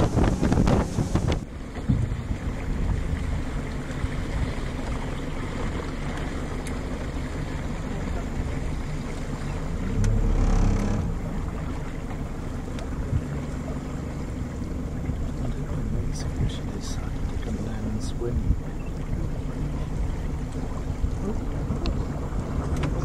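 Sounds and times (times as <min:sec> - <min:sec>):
wind on microphone: 0:00.0 - 0:05.8, 0:14.3 - 0:23.0
boat motor running: 0:00.0 - 0:23.0
water noise: 0:00.0 - 0:23.0.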